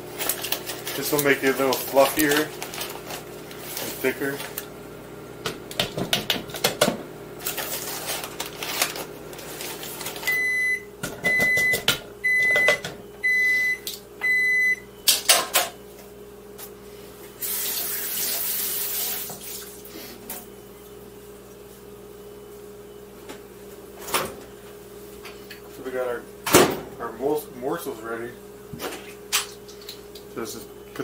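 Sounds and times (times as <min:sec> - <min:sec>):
microwave high beeps: 0:10.2 - 0:15.1.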